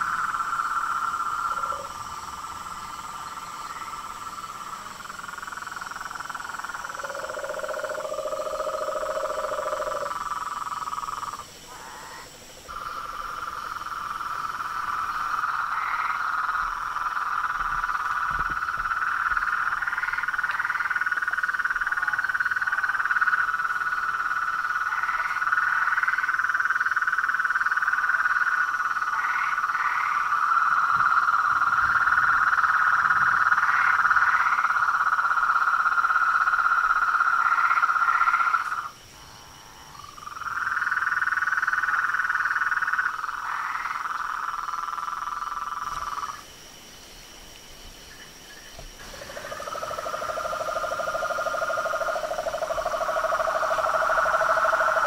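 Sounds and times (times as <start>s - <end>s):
higher rising frog calls: 0.0s - 46.6s, 48.1s - 55.0s
frogs chorus: 0.0s - 55.0s.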